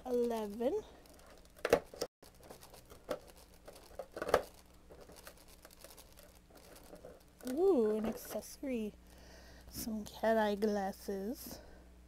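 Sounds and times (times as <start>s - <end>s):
cardboard pops and crinkles: 1.6s - 5.8s.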